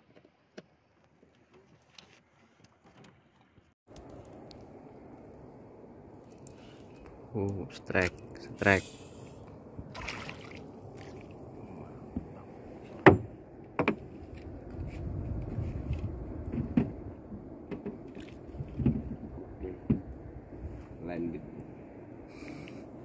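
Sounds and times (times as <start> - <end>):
water washing against hull: 9.8 - 13.0
knocks and scrapes against boat: 12.1 - 20.1.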